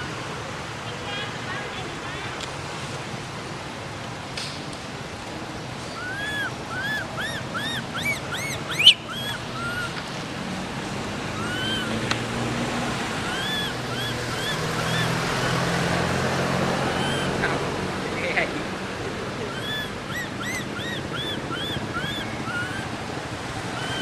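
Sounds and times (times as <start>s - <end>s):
steady outdoor hiss: 0.0s - 24.0s
baby monkey squealing: 6.0s - 10.0s, 11.4s - 12.0s, 13.1s - 15.9s, 16.8s - 17.4s, 19.4s - 23.0s, 23.7s - 24.0s.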